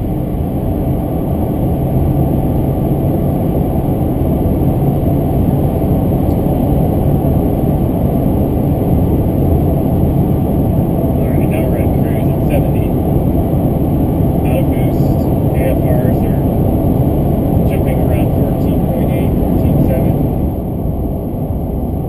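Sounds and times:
car engine drone in cabin: 0.0s - 22.0s
road and tyre noise: 0.0s - 22.0s.

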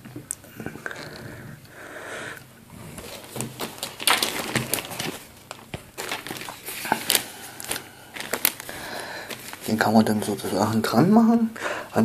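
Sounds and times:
fabric mask rustling and crinkling: 2.7s - 11.0s.

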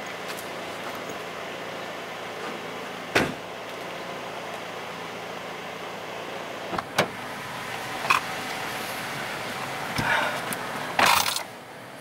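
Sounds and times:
thump with rustling: 3.2s - 3.4s.

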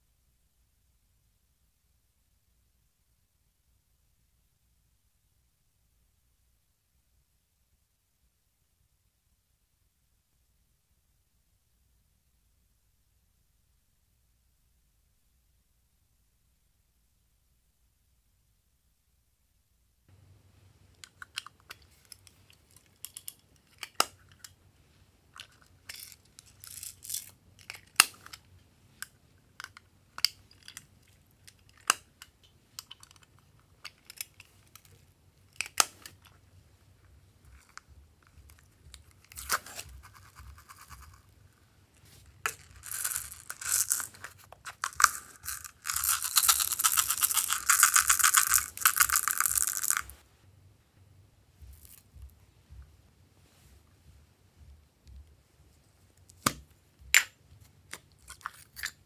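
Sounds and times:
plastic beads rattling out: 25.9s - 27.8s, 42.4s - 50.2s.

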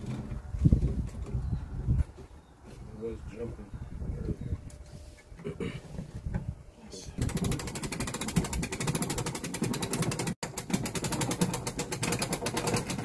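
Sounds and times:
winch ratcheting: 7.2s - 13.0s.

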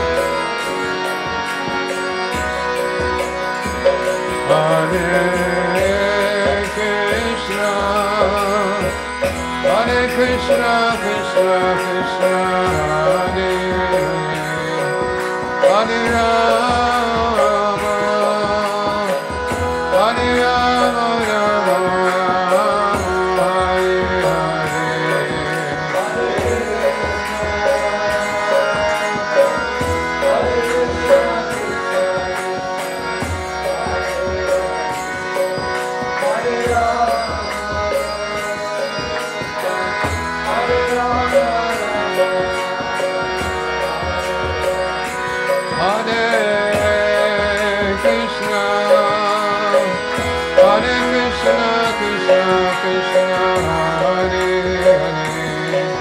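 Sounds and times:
hand drum: 0.0s - 56.0s
held drone: 0.0s - 56.0s
voices chanting devotional song: 0.0s - 56.0s.

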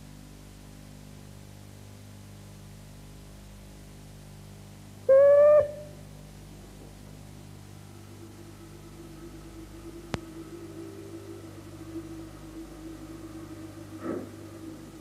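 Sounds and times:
low hum and hiss: 0.0s - 15.0s
short whistle blast: 5.1s - 5.9s.

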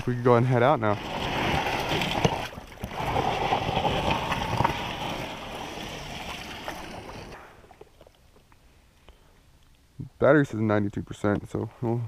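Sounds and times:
water sloshing and splashing: 0.0s - 8.5s.

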